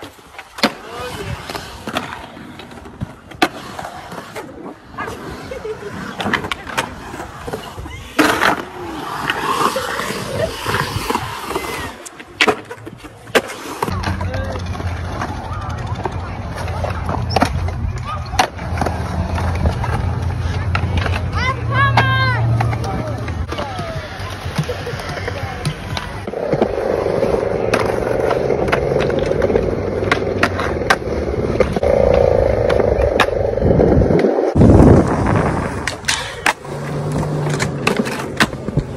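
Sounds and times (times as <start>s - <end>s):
skateboard wheels rolling on concrete: 0.0s - 38.9s
skateboard clacking on concrete: 6.1s - 38.9s.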